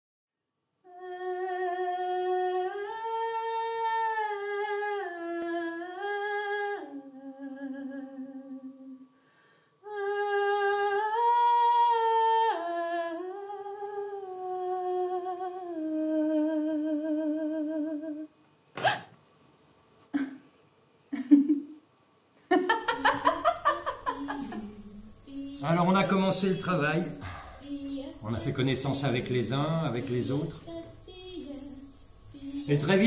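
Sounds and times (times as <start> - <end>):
person humming a melody: 24.1 - 25.8.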